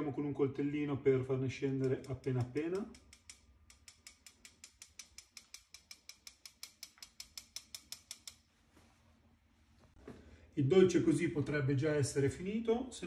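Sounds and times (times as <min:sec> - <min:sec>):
knife tapping a sieve: 0:01.8 - 0:08.3.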